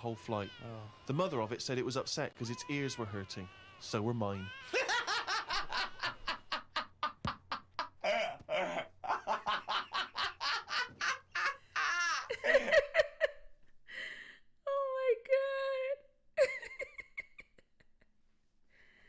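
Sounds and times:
woman laughing hard: 4.7s - 13.6s, 16.4s - 18.1s.

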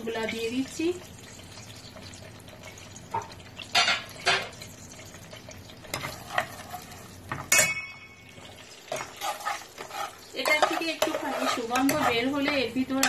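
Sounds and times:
spices sizzling in hot oil: 0.0s - 13.0s
metal spatula knocking a pot: 7.3s - 8.2s, 10.4s - 13.0s.

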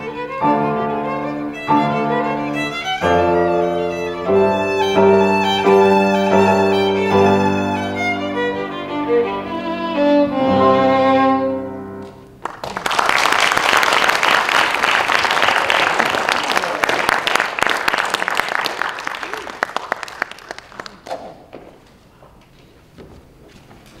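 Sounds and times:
violin and piano playing: 0.0s - 12.2s
audience applause: 12.4s - 21.3s.

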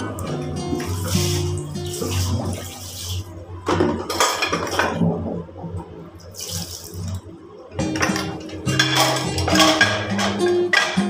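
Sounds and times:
water splashing on wooden board: 0.7s - 3.4s, 6.2s - 7.2s.

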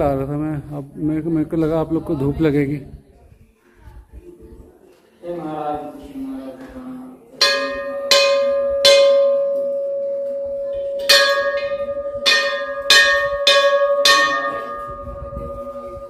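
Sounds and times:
metal bell ringing: 7.4s - 16.0s.

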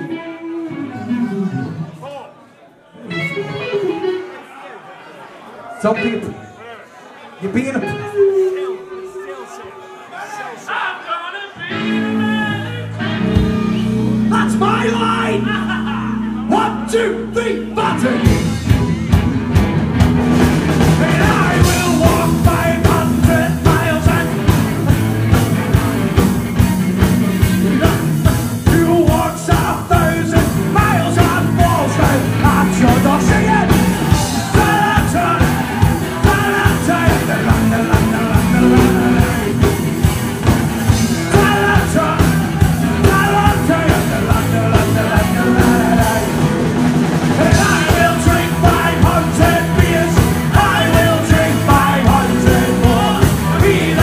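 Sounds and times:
live rock band playing: 0.0s - 2.0s, 3.0s - 4.5s, 11.7s - 54.0s
driving drum beat: 18.2s - 54.0s.

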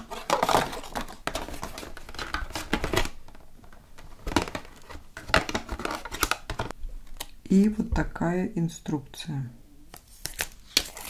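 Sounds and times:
packaging crinkling and rustling: 0.0s - 7.3s, 10.0s - 11.0s.

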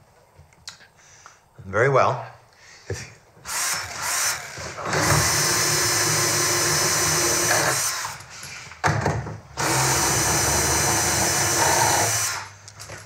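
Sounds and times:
cordless drill running: 3.4s - 8.2s, 9.6s - 12.6s.

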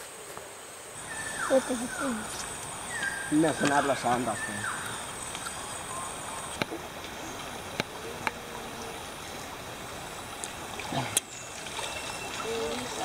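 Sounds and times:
stream water trickling and sloshing: 0.0s - 13.0s.

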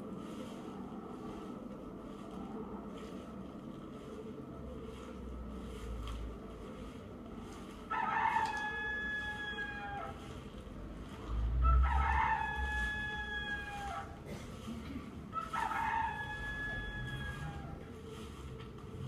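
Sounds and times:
rooster crowing: 7.9s - 10.4s, 11.3s - 14.2s, 15.3s - 17.8s.

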